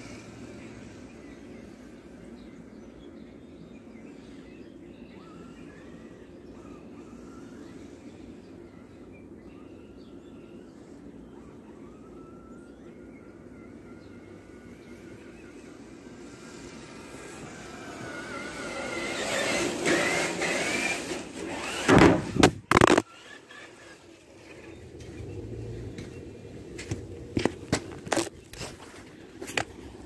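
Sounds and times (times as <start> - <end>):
electric motor and gears whining: 0.0 - 2.5, 13.8 - 30.0
loud thumps: 21.5 - 23.0.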